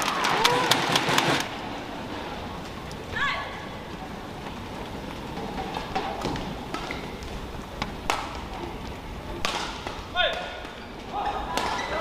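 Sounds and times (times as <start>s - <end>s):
arena background noise: 0.0s - 12.0s
rackets hitting shuttlecock: 7.8s - 8.7s, 9.4s - 12.0s.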